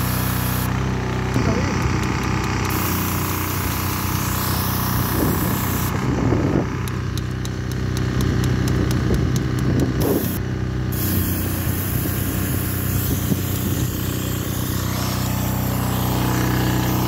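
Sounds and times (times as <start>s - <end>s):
pressure washer spray hissing: 0.0s - 0.7s, 2.6s - 5.9s, 10.0s - 17.0s
machine running hum: 8.1s - 17.0s.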